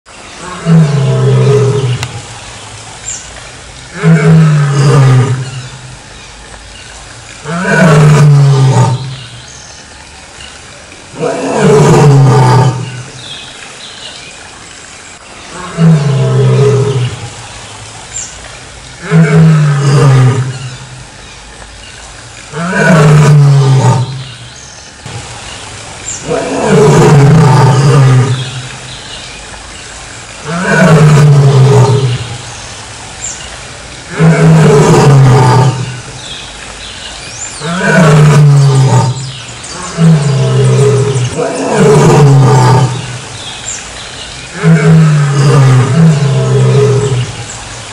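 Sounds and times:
lion roaring: 0.4s - 2.2s, 3.9s - 5.8s, 7.4s - 9.3s, 11.1s - 13.1s, 15.5s - 17.3s, 19.0s - 20.8s, 22.6s - 24.3s, 26.2s - 28.7s, 30.4s - 32.4s, 34.1s - 36.1s, 37.6s - 43.2s, 44.5s - 47.4s.

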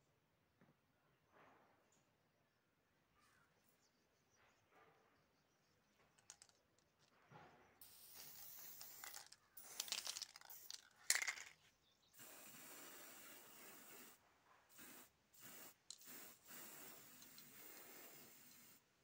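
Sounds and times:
aerosol spray can hissing: 7.8s - 11.5s, 12.2s - 18.9s.

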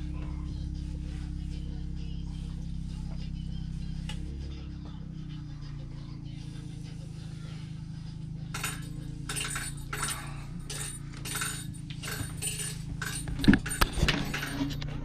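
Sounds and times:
steady low hum: 0.0s - 15.0s
rustling and light clinks: 8.6s - 15.0s.

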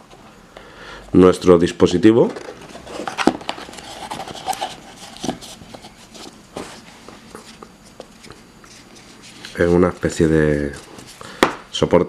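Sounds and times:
packaging rustling: 2.3s - 11.3s.

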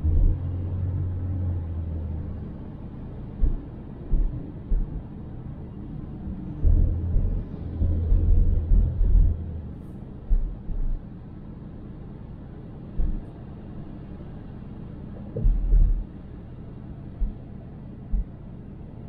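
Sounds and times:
heavy low thumps: 0.0s - 0.4s, 3.4s - 5.1s, 6.4s - 9.5s, 10.2s - 11.0s, 13.0s - 13.2s, 15.4s - 16.1s, 18.1s - 18.4s
low road rumble: 0.0s - 19.0s.

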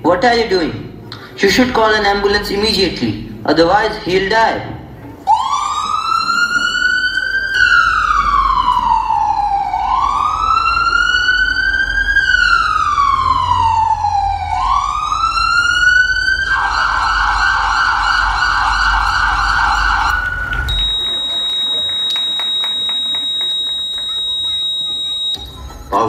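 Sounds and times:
ambulance siren: 5.3s - 25.5s.

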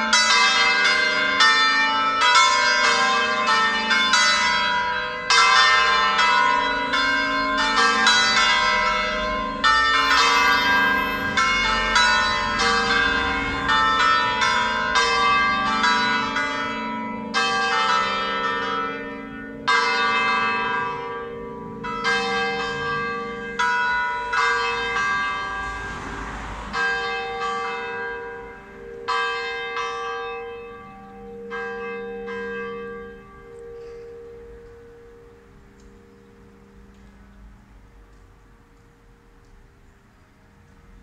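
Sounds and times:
church bells striking: 0.0s - 39.3s
bells humming: 2.3s - 25.8s.

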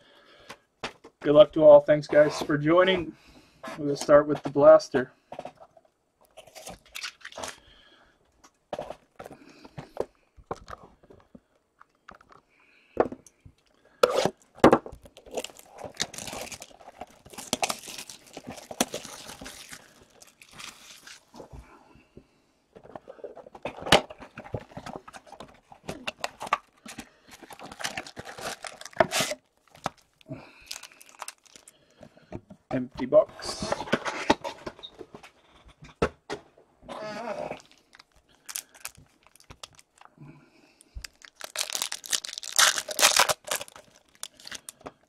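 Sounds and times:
foil packs rustling: 14.1s - 21.6s, 23.6s - 32.0s, 37.5s - 40.1s, 41.0s - 45.0s
cardboard tearing and crinkling: 15.0s - 21.4s, 24.3s - 31.7s, 41.0s - 44.7s.

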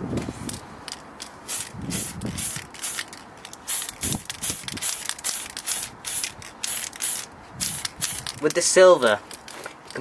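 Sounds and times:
spray can hissing bursts: 1.5s - 8.4s.

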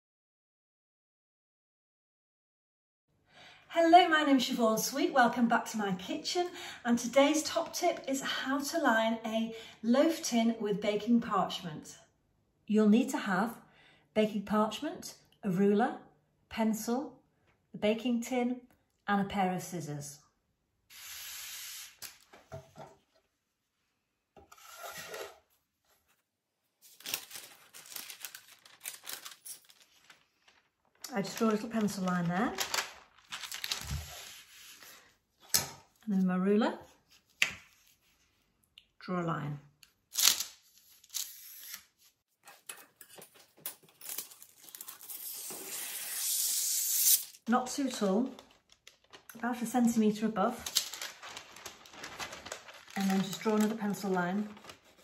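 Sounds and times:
paper sliding on stone: 20.9s - 22.2s
paper rustling: 24.6s - 35.1s, 47.8s - 55.0s.

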